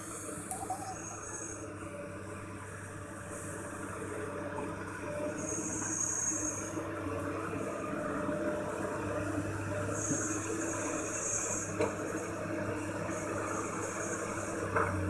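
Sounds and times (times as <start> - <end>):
thin high whine: 0.5 - 1.9.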